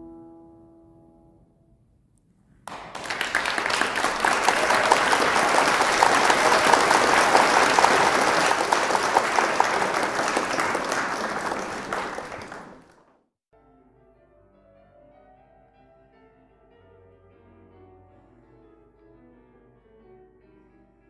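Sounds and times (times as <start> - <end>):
audience applauding: 2.7 - 13.2
sharp individual claps: 2.7 - 13.2.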